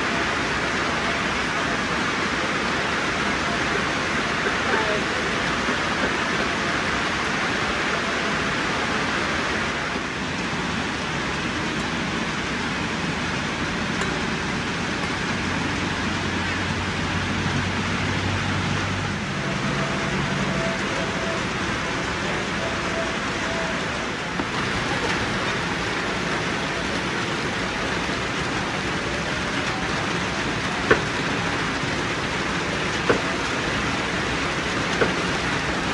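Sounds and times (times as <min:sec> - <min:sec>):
steady rain falling: 0:00.0 - 0:35.9.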